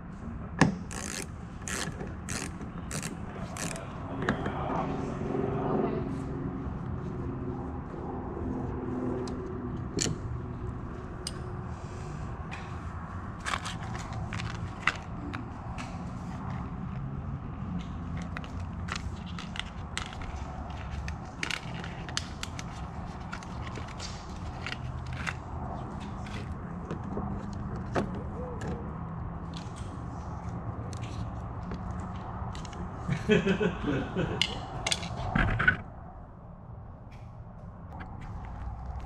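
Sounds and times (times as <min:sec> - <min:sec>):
low shop hum: 0:00.0 - 0:39.0
plastic clicks and scrapes: 0:00.8 - 0:03.9, 0:13.4 - 0:16.5, 0:17.8 - 0:28.2.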